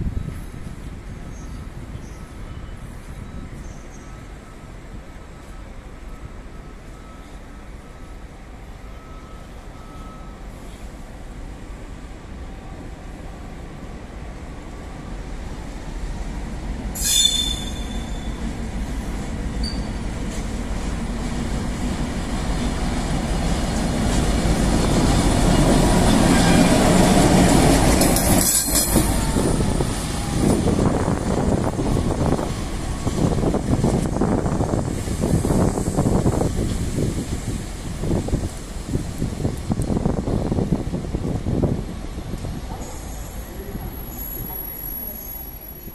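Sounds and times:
diesel locomotive passing: 0.0 - 45.9
high-pitched wheel squeal: 17.0 - 18.4, 19.6 - 20.0.

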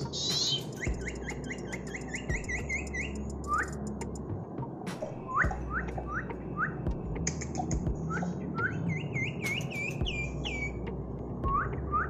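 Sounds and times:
bird whistling rising notes: 0.0 - 3.9, 5.1 - 6.9, 8.0 - 10.8, 11.4 - 12.0.

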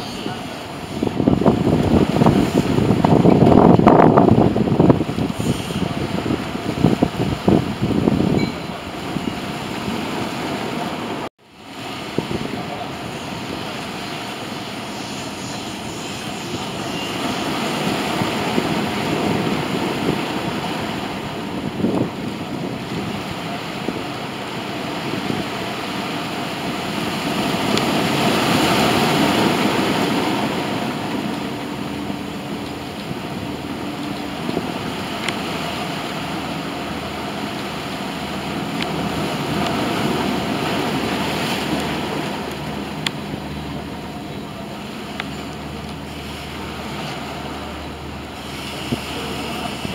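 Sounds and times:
turboprop aircraft engines: 26.2 - 49.9.

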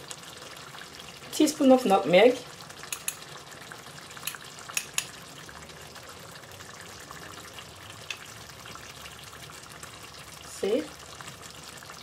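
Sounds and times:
stew bubbling and sizzling: 0.0 - 12.0
sharp pops from pot: 2.9 - 3.3, 4.2 - 5.2.

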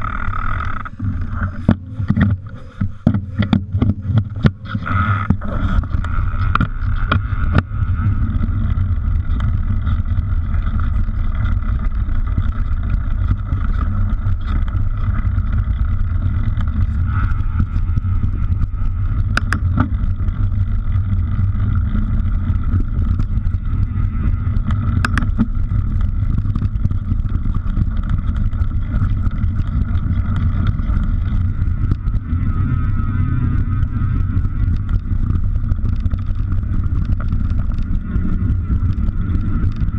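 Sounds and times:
bike trail rumble: 0.0 - 39.9
faint steady whir: 0.0 - 39.9
wind on microphone: 0.0 - 39.9.

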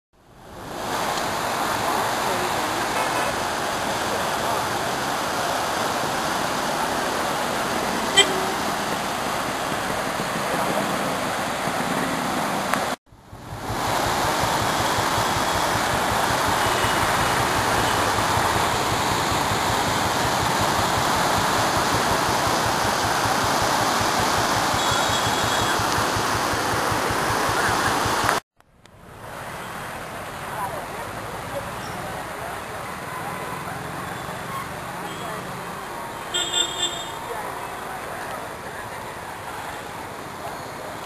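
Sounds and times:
floodwater rushing: 0.2 - 28.4, 29.0 - 41.0.

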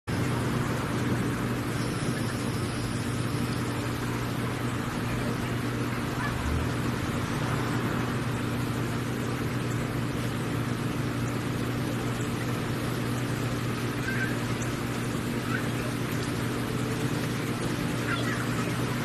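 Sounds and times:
steady background hum: 0.1 - 19.0.

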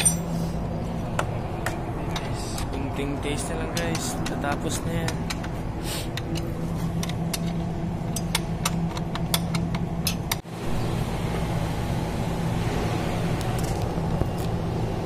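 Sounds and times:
sharp metallic clicks and taps: 3.7 - 5.5.

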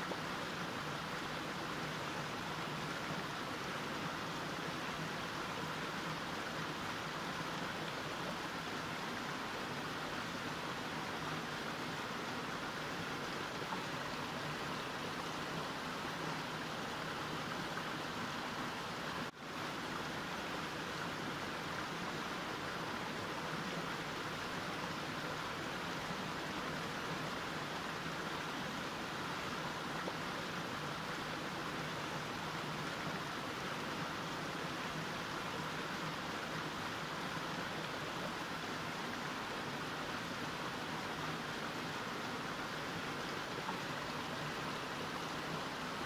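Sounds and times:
stream flowing over rocks: 0.0 - 46.0.

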